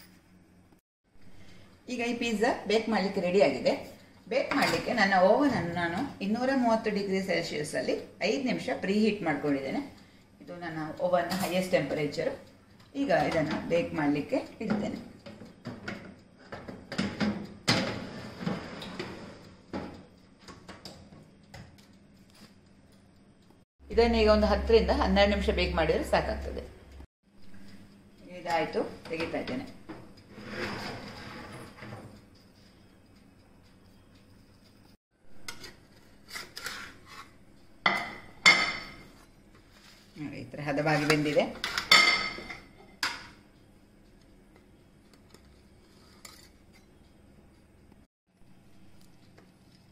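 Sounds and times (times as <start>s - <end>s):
metal tray knocking and clattering: 14.6s - 20.0s
metal spatula scraping baking tray: 17.7s - 19.5s, 30.3s - 32.0s, 35.4s - 37.4s, 38.9s - 42.6s, 45.8s - 46.6s.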